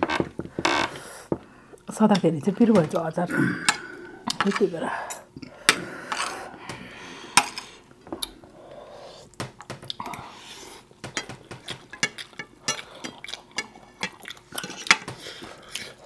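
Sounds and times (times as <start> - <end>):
cutlery clinking on plates: 11.0 - 12.8, 13.6 - 15.2.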